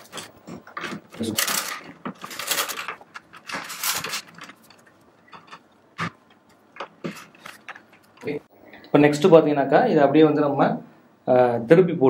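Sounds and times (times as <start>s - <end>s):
plastic casing scraping: 0.0s - 8.3s.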